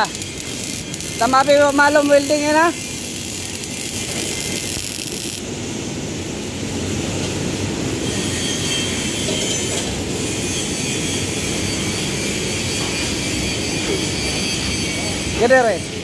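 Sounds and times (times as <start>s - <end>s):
electric arc welding hiss: 0.0s - 16.0s.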